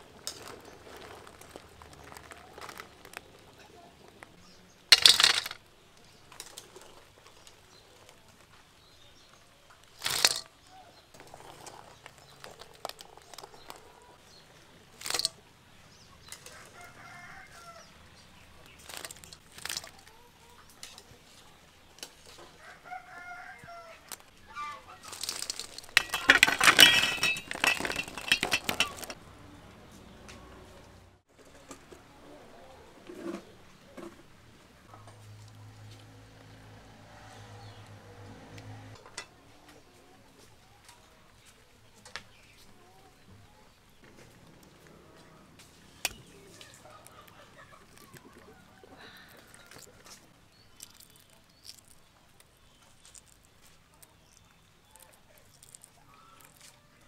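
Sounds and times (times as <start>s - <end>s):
eggs clattering onto metal tray: 4.9s - 5.6s, 10.0s - 10.5s, 15.0s - 15.4s, 25.0s - 29.2s
chickens clucking: 42.6s - 50.4s.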